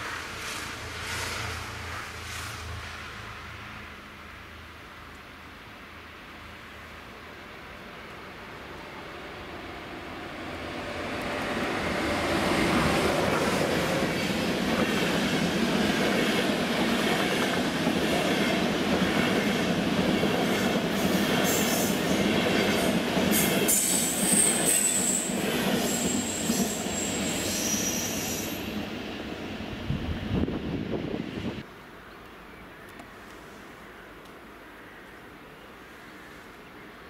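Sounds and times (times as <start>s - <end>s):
high train squeal: 0.0s - 3.2s, 20.6s - 29.3s
train wheels rushing on rail: 0.0s - 3.8s, 8.4s - 31.6s.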